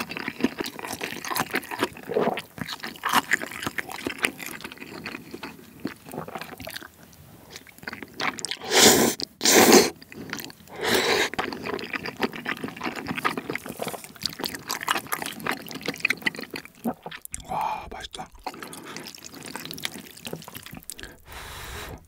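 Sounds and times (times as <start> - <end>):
sticky wet chewing: 0.0 - 22.0
loud wet slurps: 8.2 - 17.6, 18.2 - 22.0.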